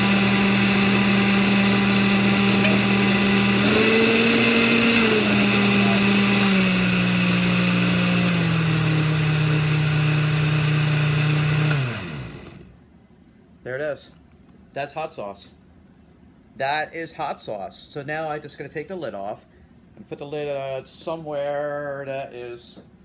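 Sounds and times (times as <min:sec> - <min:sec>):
blender motor running: 0:00.0 - 0:12.7.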